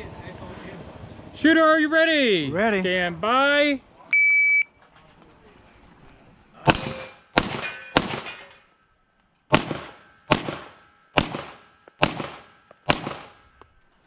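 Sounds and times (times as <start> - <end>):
pistol shots echoing: 6.7 - 8.4, 9.5 - 13.6.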